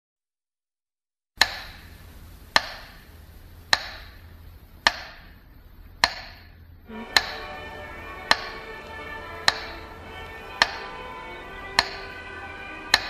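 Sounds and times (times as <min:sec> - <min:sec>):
sharp ringing knocks: 0:09.5 - 0:09.8.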